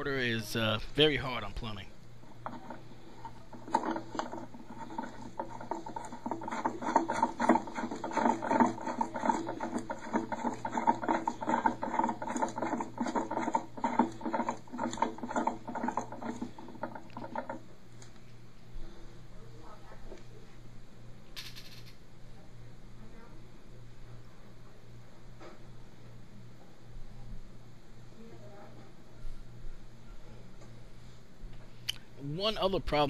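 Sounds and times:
plastic threads clicking and scraping: 2.2 - 18.2.

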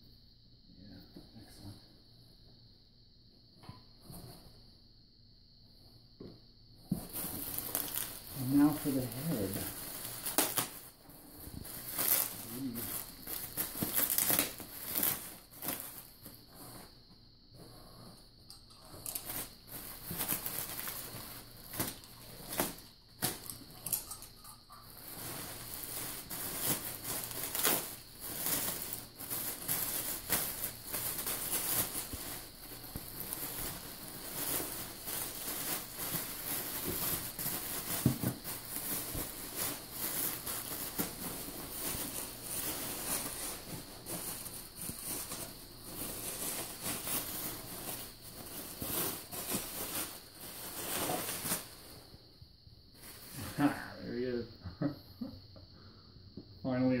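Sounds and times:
packaging rustling and crinkling: 6.9 - 16.9, 18.8 - 52.0.

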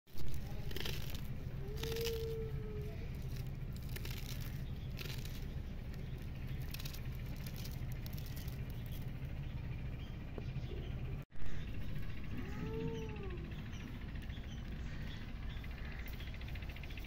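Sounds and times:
low hum: 0.1 - 17.0
knife cutting leaves: 0.2 - 9.1.

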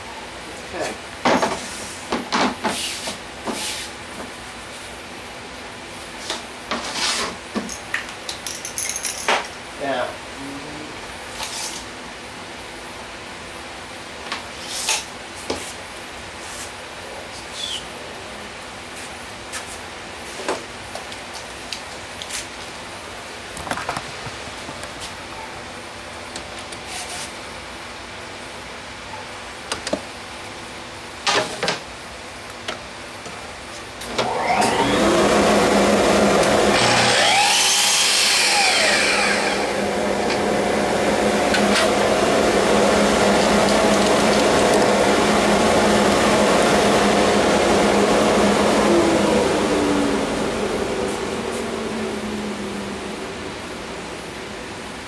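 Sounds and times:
dust extractor humming: 34.0 - 55.0
miter saw motor whining: 34.1 - 55.0
saw blade cutting wood: 36.4 - 40.4.

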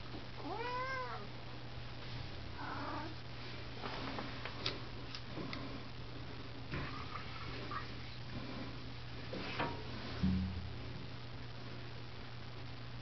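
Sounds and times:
cat meowing: 0.4 - 1.3.

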